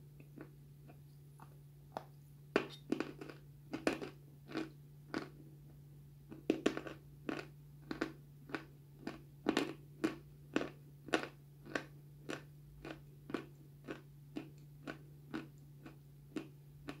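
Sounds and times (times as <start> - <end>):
crunchy chewing: 2.7 - 5.4, 6.3 - 17.0.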